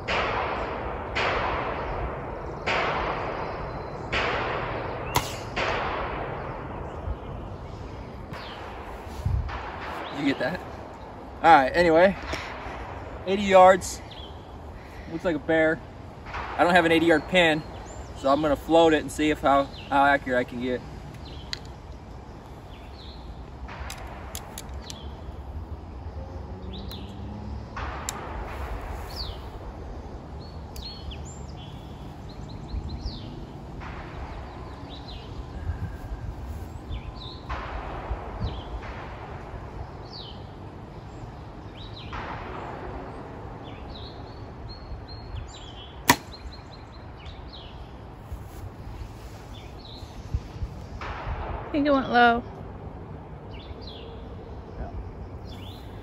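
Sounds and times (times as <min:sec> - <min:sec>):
bow string snap: 0:05.1 - 0:05.6, 0:46.0 - 0:46.4
wind on microphone: 0:06.4 - 0:15.2, 0:34.2 - 0:40.1, 0:48.2 - 0:52.2
bird chirps: 0:49.0 - 0:51.0, 0:53.5 - 0:56.0.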